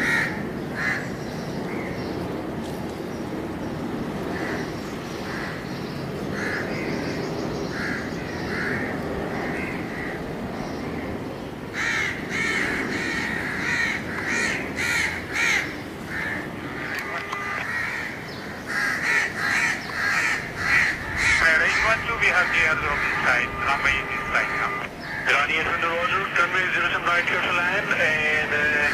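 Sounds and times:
crows cawing: 0.0s - 2.0s, 4.3s - 25.7s
steady low rumble: 19.3s - 28.9s.

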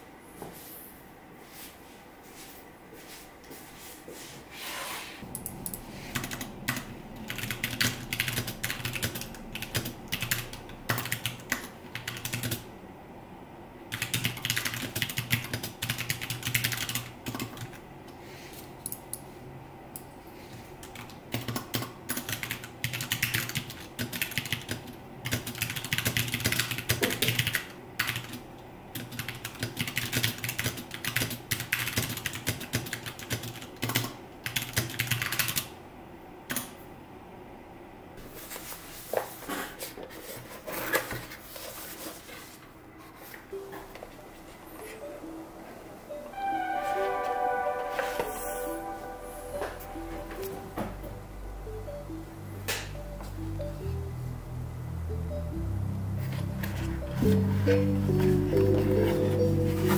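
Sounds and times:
mechanical keyboard typing: 5.3s - 12.7s, 13.9s - 17.8s, 20.8s - 28.4s, 29.0s - 35.7s.

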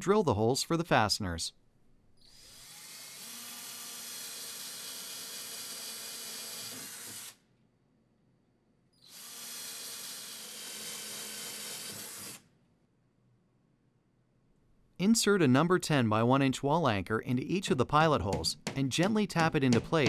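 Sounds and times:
cordless drill boring into wall: 2.2s - 7.4s, 9.0s - 12.5s.

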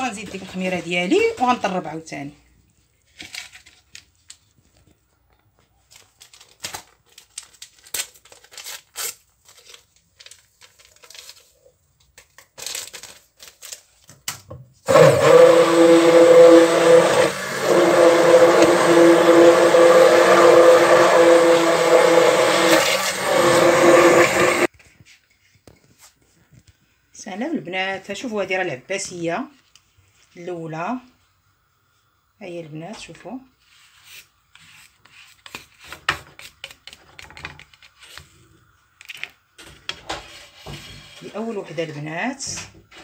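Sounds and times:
stick blender running: 14.9s - 24.7s.

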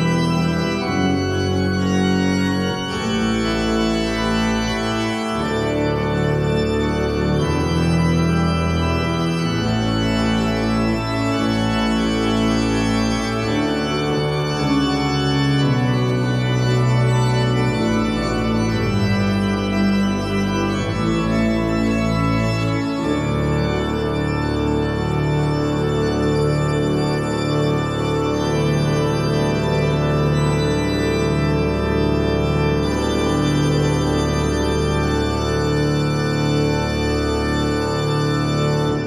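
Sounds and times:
pipe organ playing chords: 0.0s - 39.0s.

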